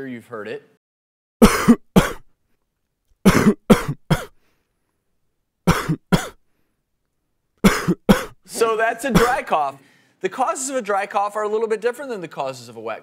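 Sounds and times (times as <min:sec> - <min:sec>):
person dry coughing: 0:01.4 - 0:02.3, 0:03.2 - 0:04.4, 0:05.7 - 0:06.4, 0:07.6 - 0:09.5.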